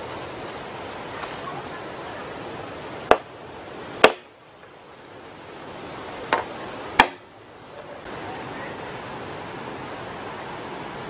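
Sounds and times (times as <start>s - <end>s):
blade chopping bamboo: 3.1s - 3.3s, 4.0s - 4.3s, 6.3s - 7.2s.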